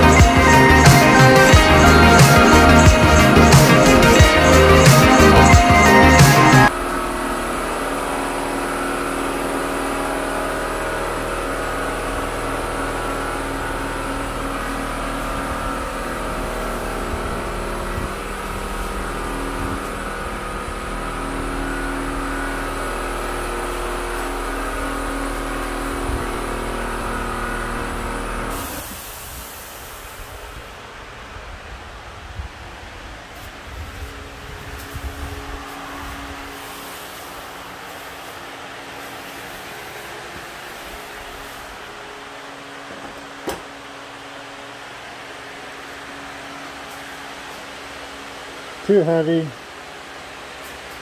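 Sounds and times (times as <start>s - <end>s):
paint sprayer motor hum and hiss: 0.0s - 51.0s.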